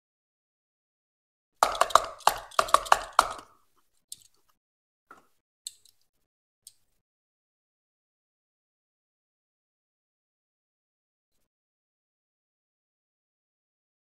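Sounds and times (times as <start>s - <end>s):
toy car and box clicks and taps: 1.6s - 4.5s.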